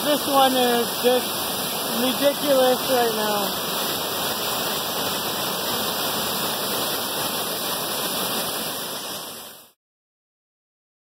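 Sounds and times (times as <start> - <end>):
waterfall roaring: 0.0 - 9.8.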